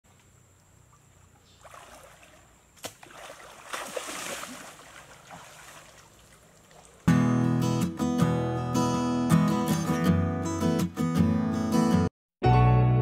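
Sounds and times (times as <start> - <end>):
water stirring from wading: 1.2 - 7.1
loud splashing through water: 1.6 - 7.1.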